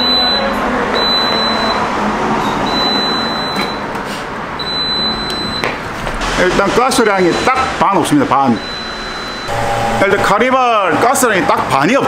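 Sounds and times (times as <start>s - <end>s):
high-pitched machine beeps: 0.0s - 1.8s, 2.6s - 3.8s, 4.6s - 5.7s, 6.4s - 7.8s, 8.4s - 11.6s
steady mechanical hum: 0.0s - 12.0s.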